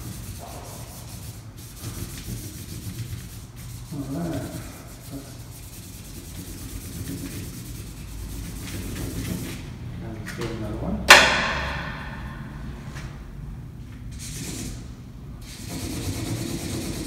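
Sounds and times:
marker rubbing on paper: 0.0 - 9.7, 14.1 - 17.0
low hum: 11.1 - 14.0.

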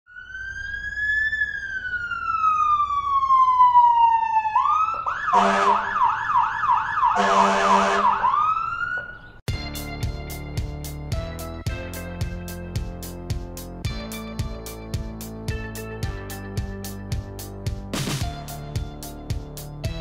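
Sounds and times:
electronic siren wailing and yelping: 0.1 - 9.3
vehicle horn blasts: 5.4 - 5.8, 7.2 - 8.1
guitar music: 9.5 - 20.0.

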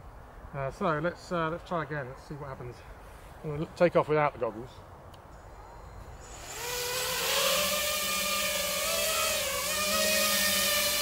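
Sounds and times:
quadcopter motors whining buzz: 5.9 - 11.0.

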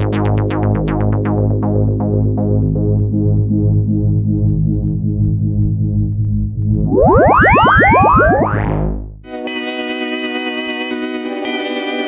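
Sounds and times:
synthesizer low chord: 0.7 - 9.4
synthesizer plucked notes: 5.8 - 9.4.

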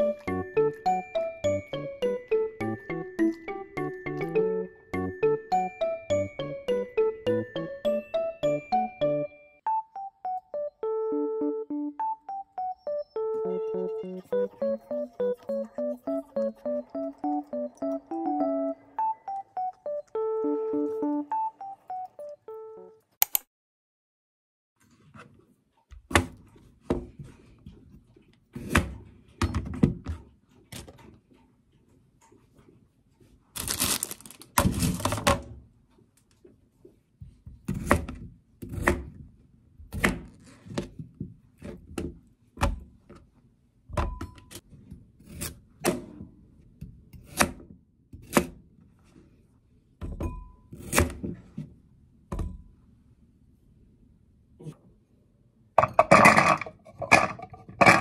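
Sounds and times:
knife chopping carrots on board: 37.4 - 40.9, 47.1 - 48.6.

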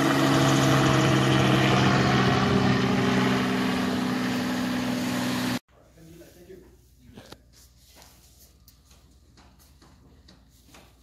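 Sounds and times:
engine humming: 0.0 - 5.6.

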